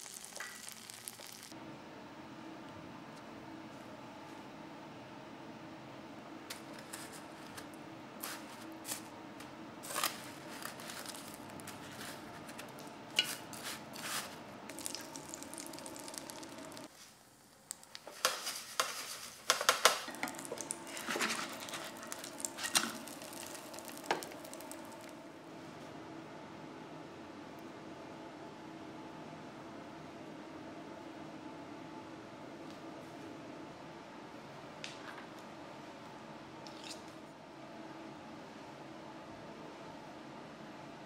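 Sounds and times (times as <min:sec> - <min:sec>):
food frying in oil: 0:00.0 - 0:01.5, 0:12.7 - 0:25.2.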